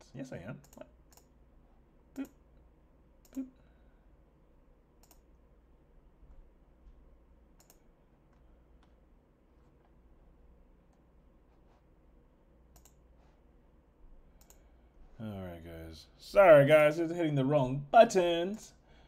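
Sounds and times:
faint low hum: 0.0s - 19.0s
computer mouse clicking: 0.6s - 1.3s, 5.0s - 5.4s, 7.6s - 9.0s, 12.7s - 13.1s, 14.4s - 14.7s.

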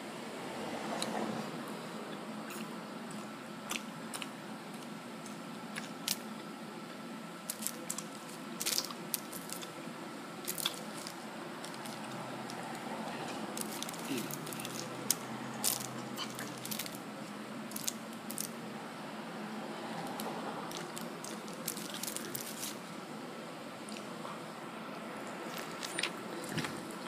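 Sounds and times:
crisp crunching clicks: 7.5s - 9.7s, 10.4s - 12.8s, 20.1s - 22.8s
person chewing and biting: 10.5s - 12.9s.

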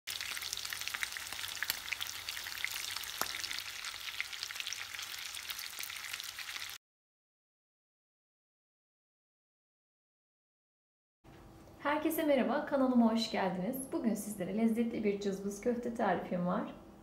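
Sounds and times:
oil sizzling and popping: 0.1s - 6.8s.

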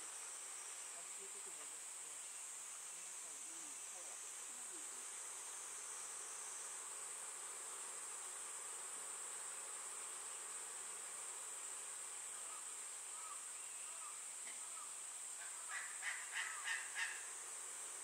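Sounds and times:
high insect drone: 0.0s - 18.0s
owl chick calling: 15.4s - 17.3s.

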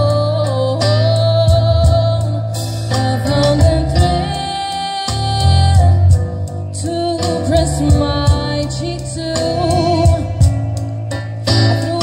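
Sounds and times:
woman singing into a microphone: 0.0s - 10.7s, 11.4s - 12.0s
drum kit: 0.0s - 12.0s
keyboard: 0.0s - 12.0s.

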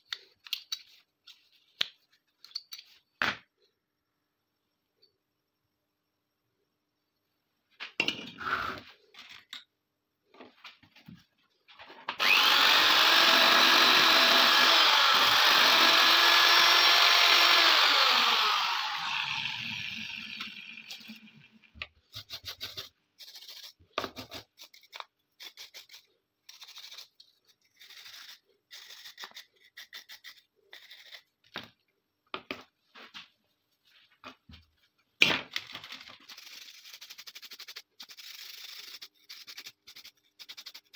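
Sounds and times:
small electric power tool running: 12.2s - 21.7s.

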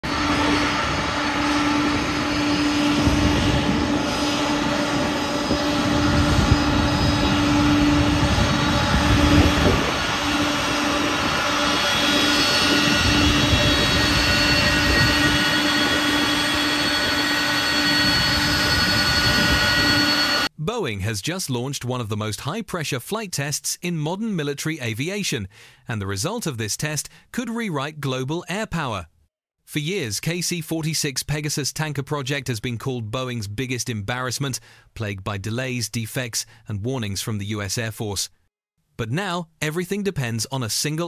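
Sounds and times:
jet engines roaring with whine: 0.0s - 20.5s.

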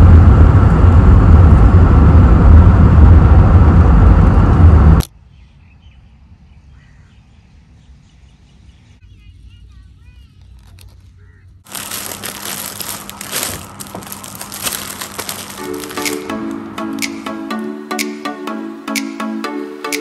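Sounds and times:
car wind and road noise: 0.0s - 6.8s
faint bird chirps: 5.2s - 11.6s.

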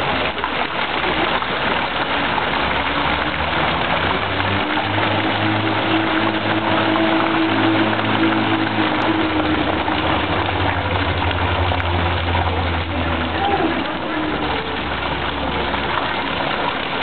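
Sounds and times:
fountain water splashing: 0.0s - 17.0s
low steady hum: 0.0s - 17.0s.

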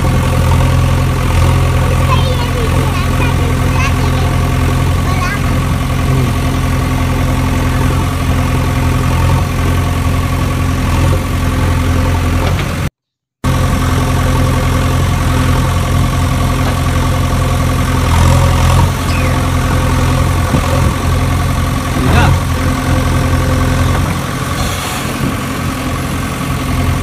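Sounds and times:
engine idling: 0.0s - 27.0s.

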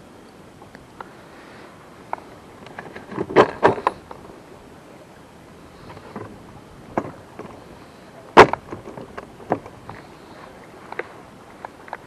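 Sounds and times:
knocks and clunks in metal boat: 2.8s - 4.0s, 6.0s - 7.6s, 8.4s - 10.0s.

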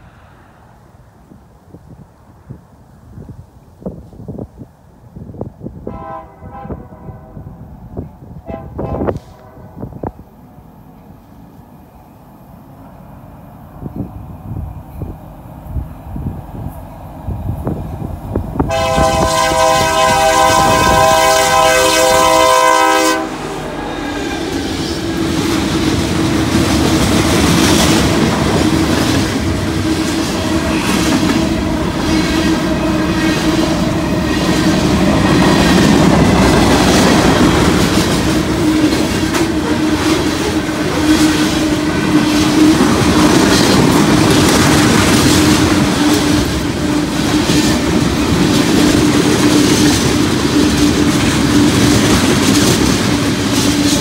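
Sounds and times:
freight train wheel noise: 0.0s - 54.0s
locomotive horn blast: 5.8s - 7.5s, 8.4s - 10.1s, 18.6s - 24.6s
clickety-clack over rail joints: 24.4s - 54.0s.

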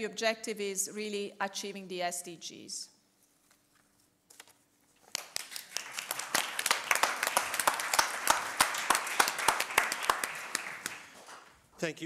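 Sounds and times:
audience applauding: 5.1s - 11.6s.

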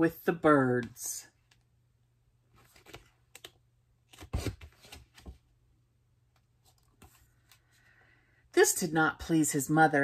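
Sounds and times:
book pages turning: 2.5s - 5.5s, 6.4s - 7.8s
papery rustles and taps: 2.6s - 5.4s.

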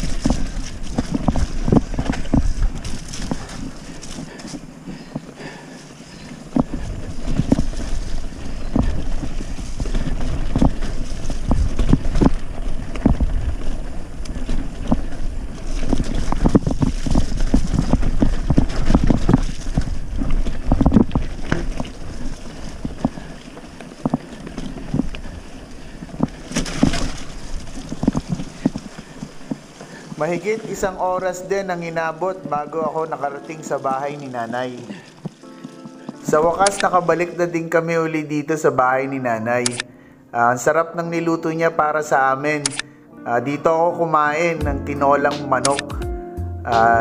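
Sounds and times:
bike rolling over rough trail: 0.0s - 39.6s
wind buffeting microphone: 6.1s - 29.8s.

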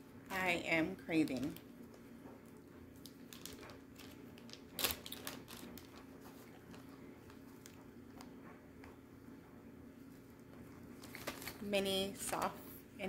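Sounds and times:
plastic bag crinkling: 3.0s - 7.8s, 11.0s - 11.7s.

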